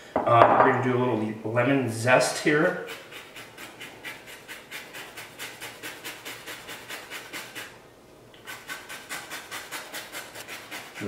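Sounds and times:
lemon rind scraped on zester: 2.3s - 7.8s, 8.4s - 11.0s.

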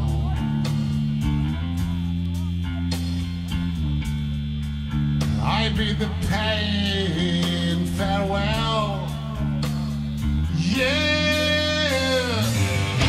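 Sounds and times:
bass guitar: 0.0s - 13.0s
drums: 0.0s - 13.0s
electric guitar: 0.0s - 13.0s.

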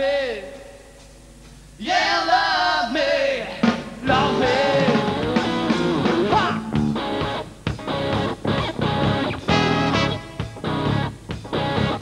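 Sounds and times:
funk rock band playing: 3.6s - 12.0s
bending lead guitar note: 5.1s - 12.0s.

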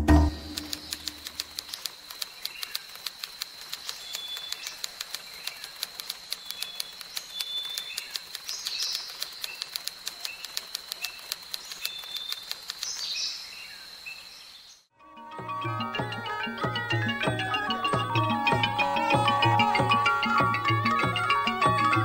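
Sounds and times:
typewriter key clicks: 0.1s - 13.1s
birds chirping and whistling: 3.8s - 14.8s, 15.6s - 22.0s.

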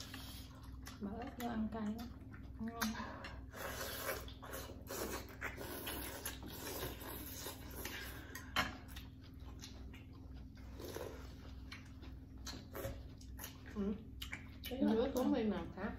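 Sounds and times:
chewing: 0.0s - 15.8s
people slurping noodles: 2.9s - 8.5s.

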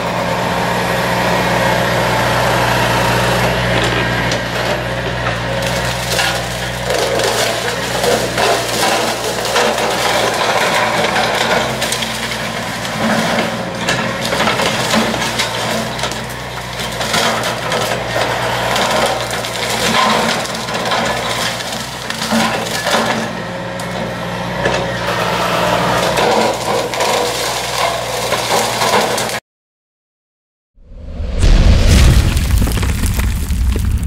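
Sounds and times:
brush cutter crackling through brush: 2.6s - 23.2s.

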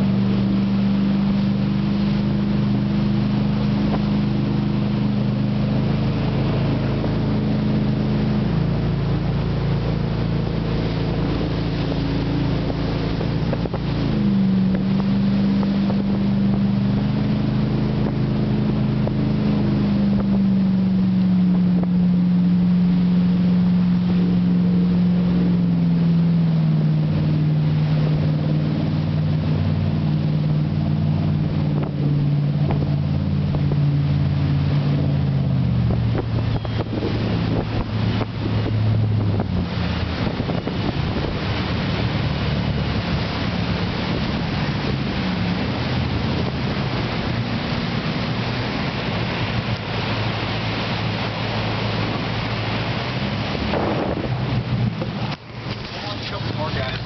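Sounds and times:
wind buffeting microphone: 0.0s - 22.5s, 25.1s - 57.0s
motorboat engine running hard: 0.0s - 57.0s
rushing rapids: 32.2s - 57.0s.

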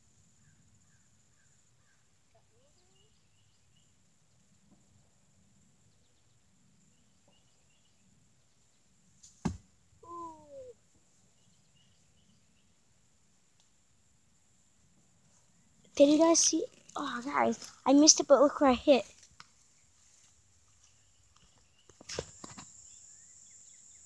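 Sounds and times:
faint bird chirps: 0.4s - 4.4s, 5.8s - 8.9s
arrow thudding into straw target: 9.2s - 9.7s
short falling cry: 10.0s - 10.7s.

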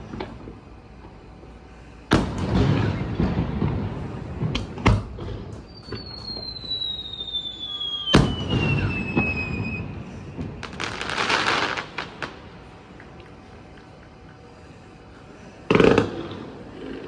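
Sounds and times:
firework crackling: 2.1s - 14.3s, 15.6s - 17.0s
firework whistle falling in pitch: 5.6s - 10.0s
firework shells bursting: 15.7s - 16.7s.

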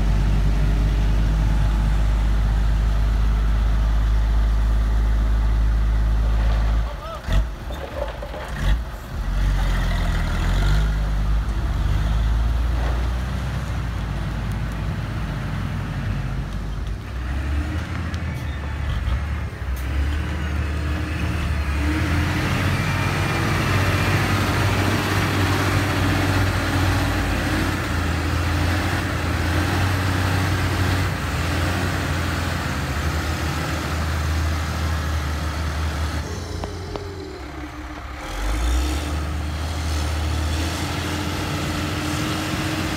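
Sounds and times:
dump truck diesel engine: 0.0s - 42.9s
motor grader engine: 0.0s - 42.9s.

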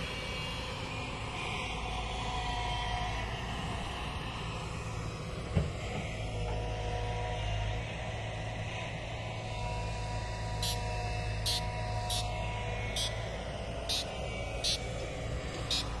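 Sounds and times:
diesel engine running: 10.1s - 16.0s.

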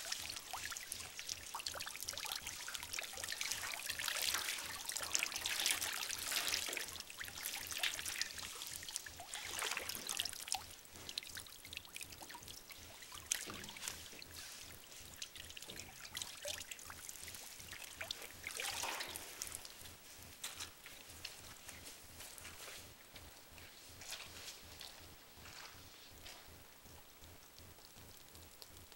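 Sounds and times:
water splashing in metal tub: 0.0s - 19.8s.

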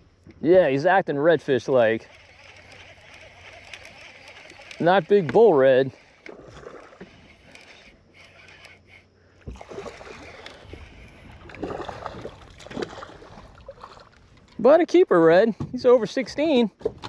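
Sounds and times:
fish splashing in water: 9.5s - 14.2s.

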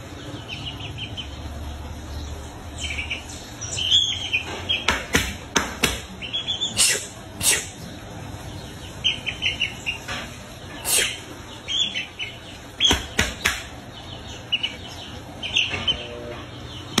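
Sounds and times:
chick peeping: 0.0s - 17.0s
sharp knocks: 4.5s - 6.1s, 12.8s - 13.7s.

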